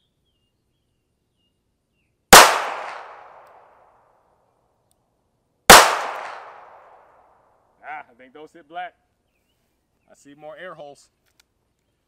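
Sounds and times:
revolver shots with echo: 2.4 - 3.4, 5.7 - 6.8.

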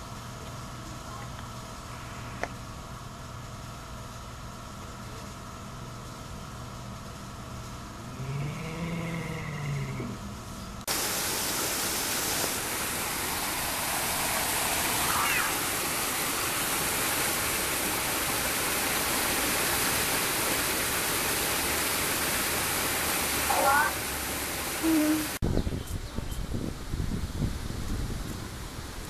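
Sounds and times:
low moaning hum: 7.7 - 10.9
small waterfall rushing: 10.8 - 25.4.

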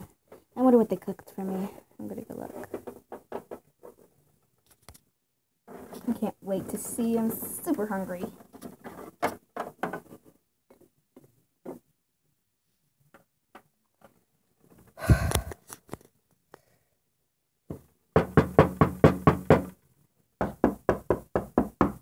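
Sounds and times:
rapid knocking on door: 17.7 - 19.7, 20.4 - 22.0.

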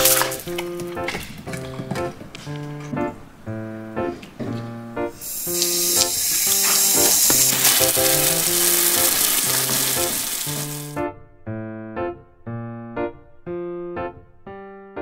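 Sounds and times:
piano music: 0.0 - 15.0
hose nozzle spraying water on tiles: 5.2 - 11.0.

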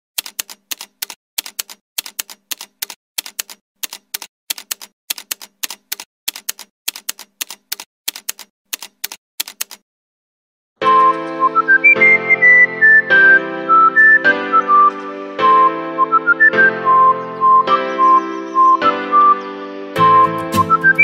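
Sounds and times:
typewriter keys clacking: 0.2 - 9.8.

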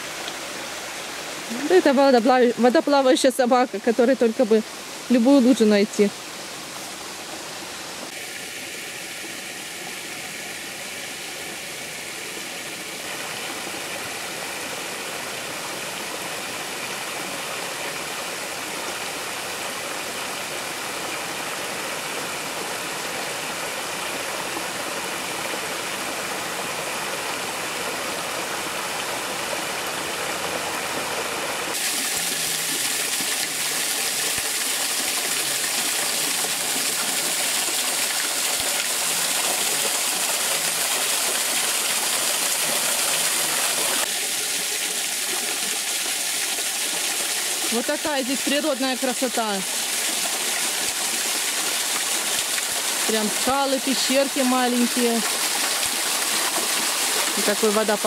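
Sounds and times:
stream running over rock: 0.0 - 58.0
spring water pouring from hole: 31.7 - 58.0.

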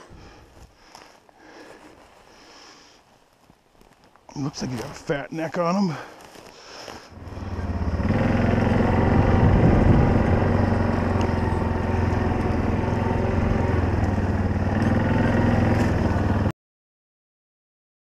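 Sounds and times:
quad bike engine running: 7.1 - 16.5.

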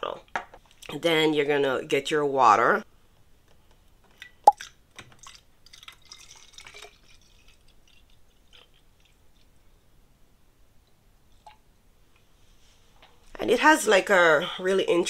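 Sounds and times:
water trickling from pouring: 5.2 - 9.2.

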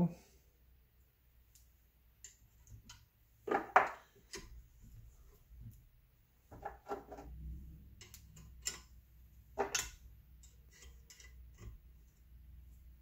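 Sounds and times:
small metallic clicks and taps: 1.5 - 3.1, 7.9 - 8.9.

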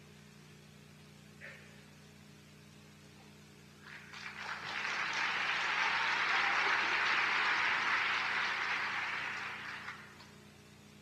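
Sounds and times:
large audience applauding: 3.8 - 10.3.

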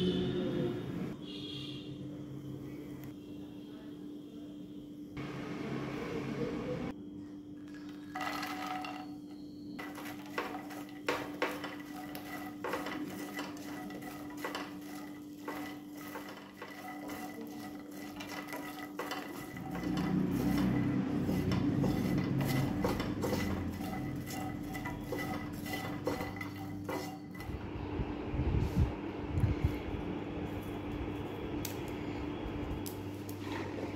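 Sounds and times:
steady low hum: 9.3 - 33.9
spatula stirring nuts in pan: 9.8 - 27.6.

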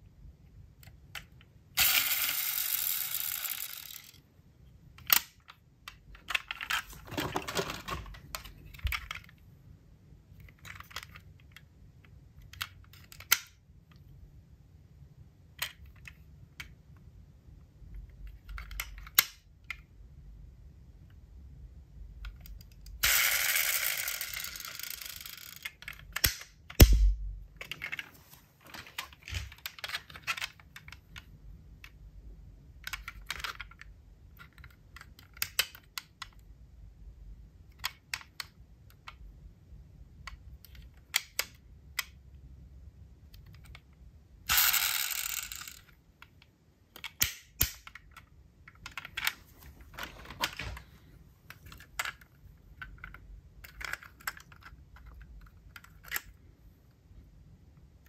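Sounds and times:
toy cars clicking and tapping: 1.2 - 4.2, 12.4 - 13.5, 22.3 - 26.8, 32.9 - 36.3, 44.5 - 49.4
heavy thump: 26.8 - 27.5.

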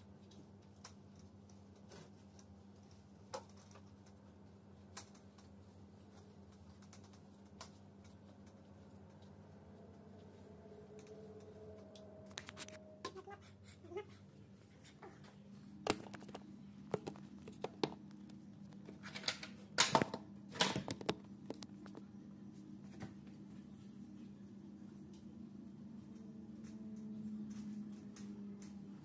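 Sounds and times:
steady low hum: 0.0 - 29.0
knocks and clatter of handled objects: 15.8 - 22.1.

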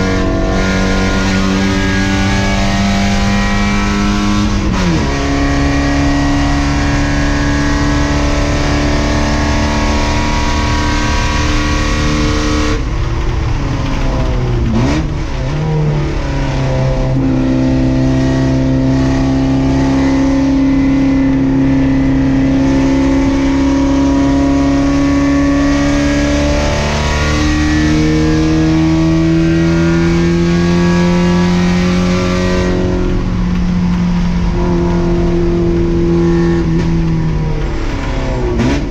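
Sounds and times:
race car engine running hard: 0.0 - 38.9.

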